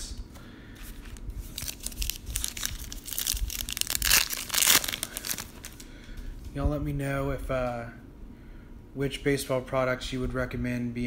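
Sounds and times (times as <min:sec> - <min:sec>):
foil wrapper crinkling: 0:00.9 - 0:05.9
foil pack tearing open: 0:01.5 - 0:05.8.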